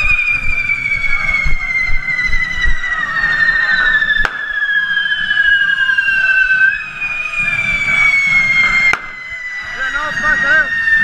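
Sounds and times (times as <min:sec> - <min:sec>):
firework whistle sliding down: 0:00.0 - 0:11.0
sharp firework bang: 0:04.2 - 0:04.6, 0:08.9 - 0:09.2.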